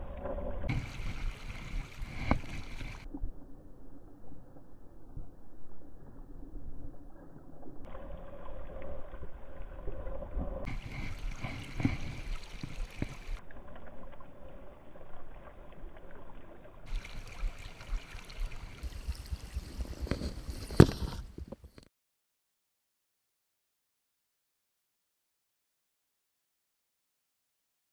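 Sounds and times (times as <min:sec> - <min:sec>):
river water rushing and lapping: 0:00.0 - 0:03.1, 0:07.9 - 0:21.3.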